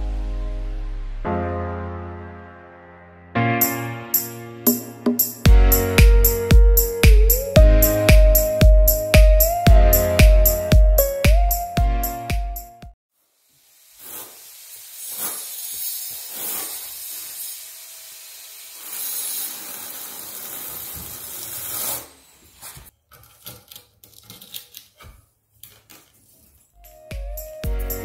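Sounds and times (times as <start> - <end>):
trowel scraping mortar: 14.0 - 17.5, 18.8 - 26.8.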